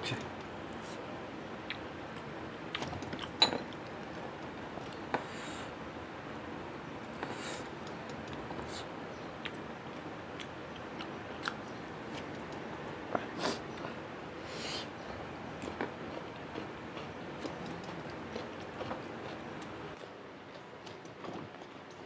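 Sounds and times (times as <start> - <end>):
breathy hisses drawn in: 14.4 - 14.9
chewing and lip smacks: 15.6 - 22.0.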